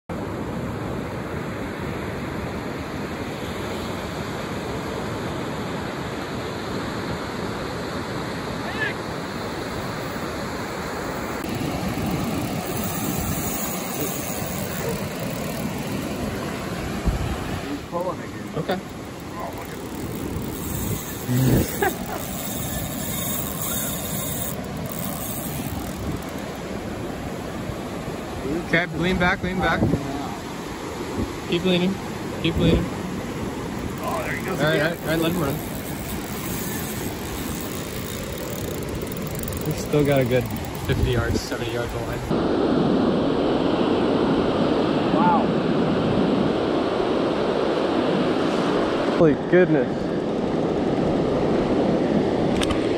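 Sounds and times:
ocean surf breaking on beach: 0.1 - 52.9
wind on microphone: 11.2 - 17.8, 19.8 - 27.9, 29.5 - 31.5, 32.2 - 49.1.

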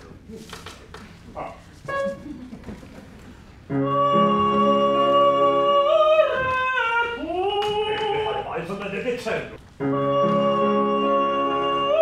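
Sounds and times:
piano chords: 3.6 - 6.4, 9.6 - 12.0
woman singing operatically: 3.7 - 8.4, 9.8 - 12.0.

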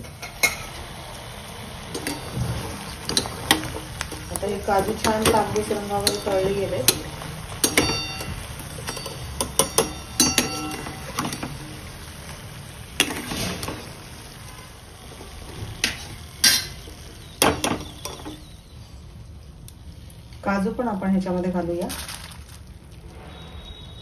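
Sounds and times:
metal utensils clinking and scraping: 1.9 - 11.8, 13.0 - 14.0, 15.8 - 16.8.

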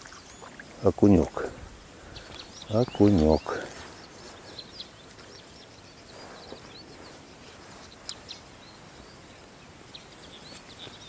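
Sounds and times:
small birds chirping: 0.0 - 11.0.

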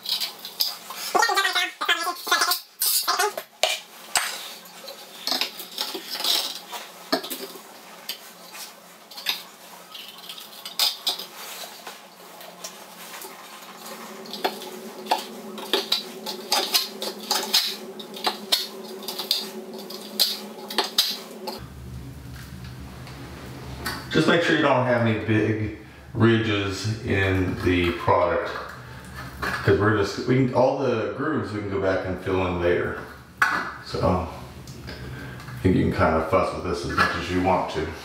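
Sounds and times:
steel trowel scraping: 12.6 - 21.6.

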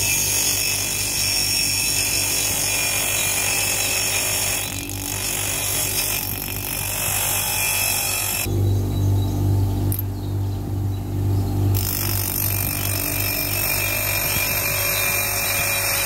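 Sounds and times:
grinder wheel grinding steel: 0.0 - 8.5, 11.7 - 16.0
motor low hum: 4.7 - 16.0.

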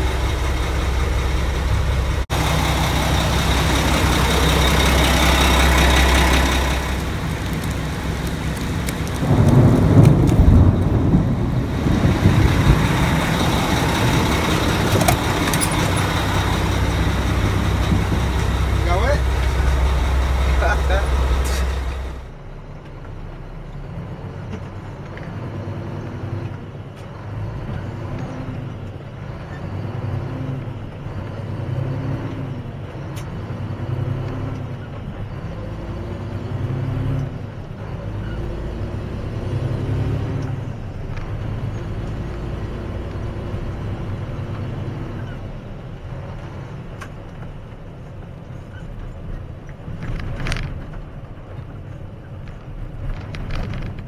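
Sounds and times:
truck diesel engine revving: 0.0 - 22.4, 27.2 - 46.9.

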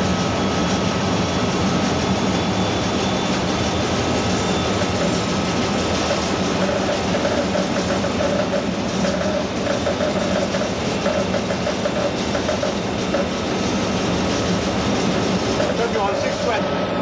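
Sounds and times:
diesel engine drone: 0.0 - 17.0
wheel-on-rail noise: 0.0 - 17.0.

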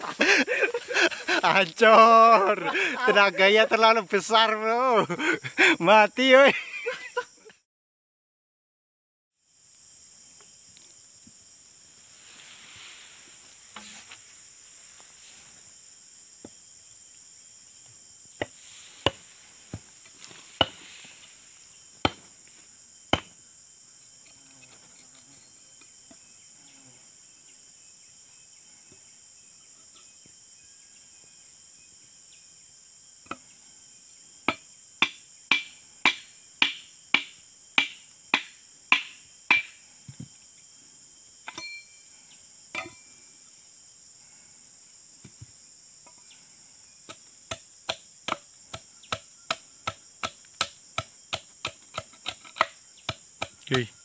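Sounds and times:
insects droning: 0.0 - 7.6, 9.4 - 54.0
metal chisel striking wood: 34.5 - 39.8.

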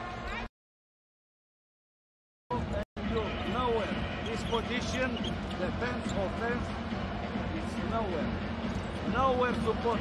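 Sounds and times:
indoor sports hall noise: 0.0 - 0.5, 2.5 - 10.0.

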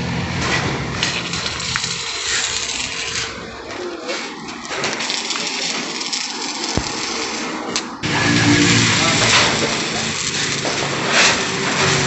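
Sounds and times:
welding arc crackling: 0.1 - 12.0.

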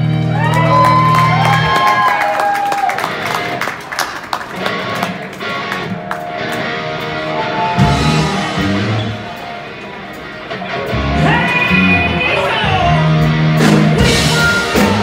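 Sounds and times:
live rock band playing: 0.0 - 15.0
heavy low notes: 4.7 - 15.0.

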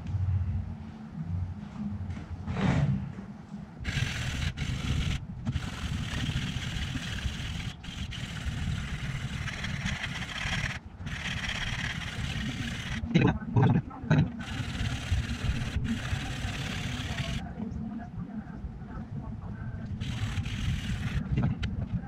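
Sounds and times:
sandpaper scraping knife blade: 3.9 - 13.0, 14.4 - 17.4, 20.0 - 21.2.

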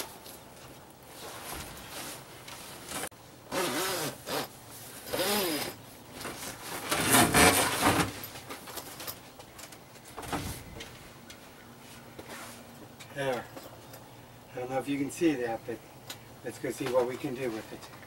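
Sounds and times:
vinyl sheet rustling and flapping: 0.0 - 3.1, 6.1 - 9.4
zippers pulled open: 3.5 - 5.8.

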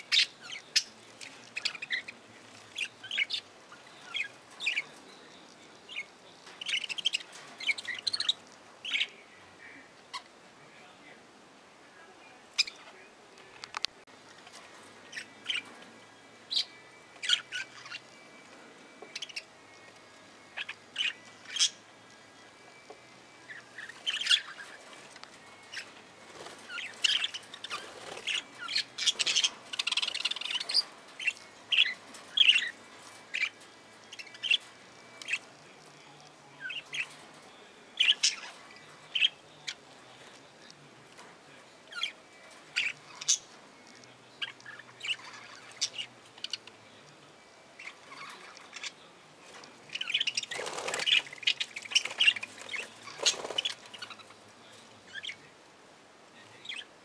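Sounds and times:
budgerigars chirping: 0.0 - 5.0, 5.9 - 9.2, 16.5 - 18.1, 19.1 - 19.5, 23.5 - 24.9, 25.6 - 35.5, 41.9 - 43.5, 44.4 - 46.7, 49.9 - 54.4.

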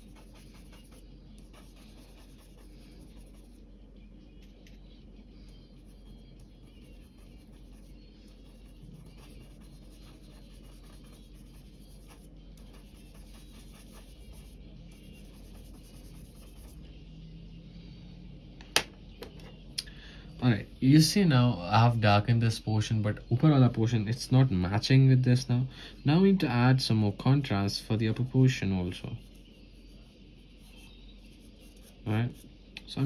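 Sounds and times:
drawing tool scratching paper: 0.0 - 3.6, 5.8 - 16.8
steady low hum: 0.0 - 33.0.

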